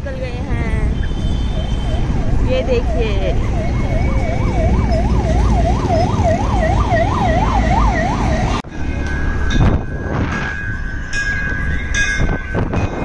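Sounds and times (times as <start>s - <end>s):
fast yelping siren: 1.8s - 8.6s.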